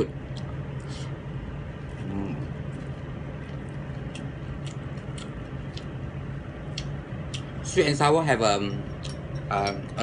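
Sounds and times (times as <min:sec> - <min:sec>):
low hum: 0:00.0 - 0:10.0
person chewing: 0:00.2 - 0:01.1, 0:01.9 - 0:07.6.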